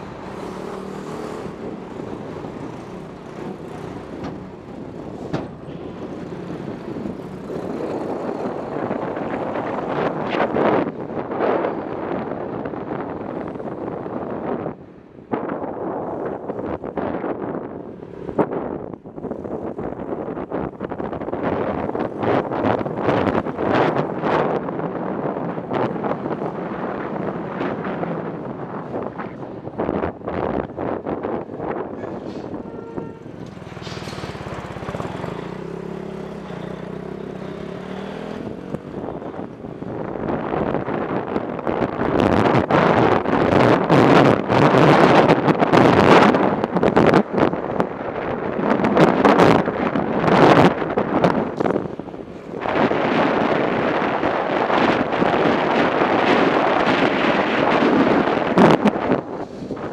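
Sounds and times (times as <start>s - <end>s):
motorcycle engine accelerating: 0.0s - 5.3s, 33.3s - 40.5s
wind noise on microphone: 0.0s - 59.9s.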